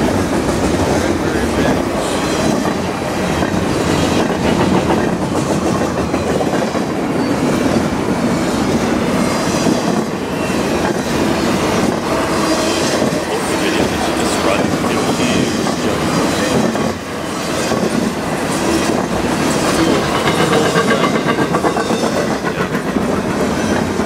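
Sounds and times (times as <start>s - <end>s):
freight train wheels rumbling: 0.0s - 24.0s.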